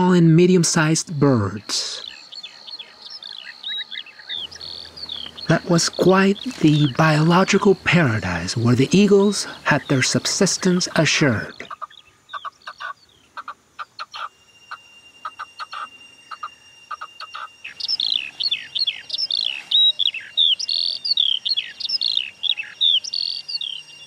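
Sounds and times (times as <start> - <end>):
lark singing whistled notes: 0.8 - 24.0
partridge clucking calls: 3.2 - 23.2.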